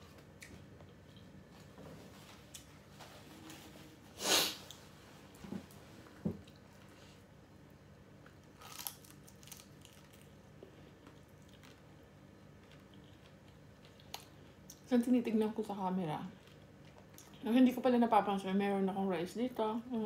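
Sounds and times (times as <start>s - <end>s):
crunching fried shrimp: 8.2s - 14.8s
chewing: 8.6s - 11.9s, 12.5s - 14.8s.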